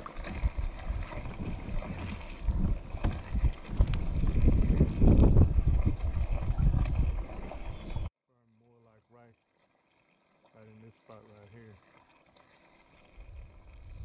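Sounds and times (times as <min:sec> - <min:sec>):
wind buffeting microphone: 0:00.2 - 0:08.1, 0:13.2 - 0:14.0.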